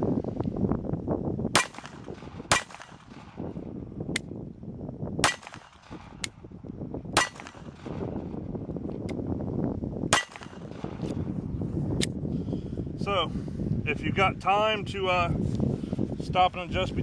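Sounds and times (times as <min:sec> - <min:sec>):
wind rumble on microphone: 0:00.0 - 0:17.0
pistol shots: 0:01.5 - 0:03.5, 0:05.2 - 0:06.4, 0:07.2 - 0:08.2, 0:10.1 - 0:11.1.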